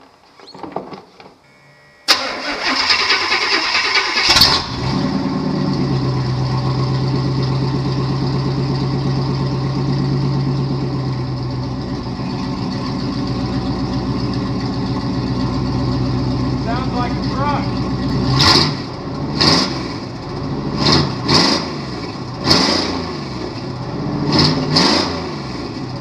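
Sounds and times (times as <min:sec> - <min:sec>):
truck engine cranking and idling: 0:02.0 - 0:26.0.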